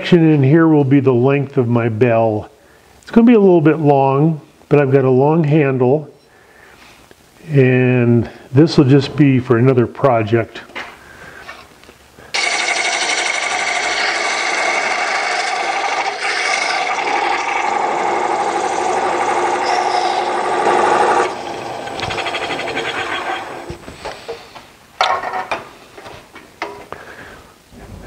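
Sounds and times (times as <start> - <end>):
quieter rough noise: 12.3 - 24.8
lathe tool scraping wood: 12.4 - 24.4.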